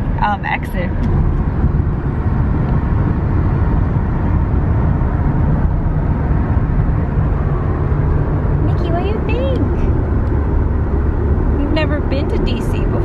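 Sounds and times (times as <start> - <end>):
car cabin road noise: 0.0 - 13.0.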